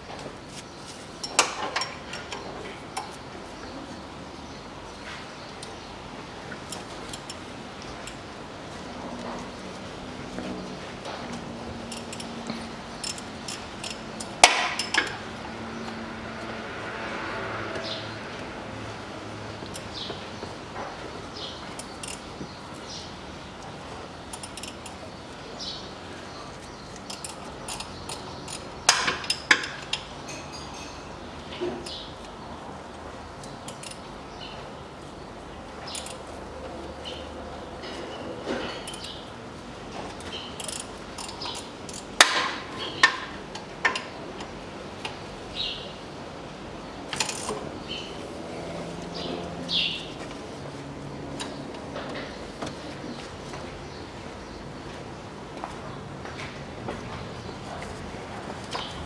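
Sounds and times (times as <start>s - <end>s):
hand tools clinking on bolts: 1.2s - 2.5s, 11.9s - 15.2s, 37.8s - 39.2s
ratchet wrench clicking: 11.9s - 12.4s, 13.0s - 15.1s, 21.7s - 22.2s, 24.3s - 25.0s, 27.0s - 30.0s, 33.7s - 34.0s, 35.9s - 36.3s, 40.2s - 42.1s, 47.1s - 47.6s.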